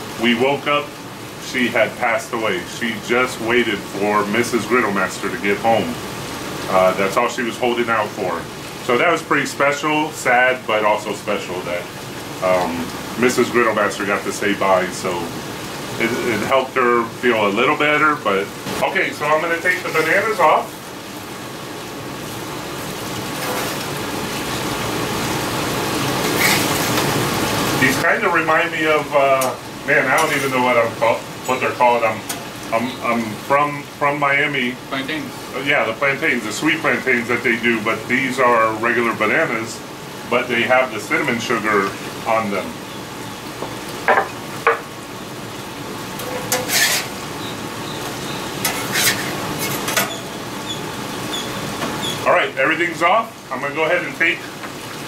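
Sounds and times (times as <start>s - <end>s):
food sizzling on a griddle: 0.0s - 55.0s
metal spatula scraping griddle: 19.7s - 20.4s, 23.3s - 24.0s, 26.2s - 27.1s, 30.2s - 30.7s, 46.2s - 47.2s, 48.6s - 50.4s.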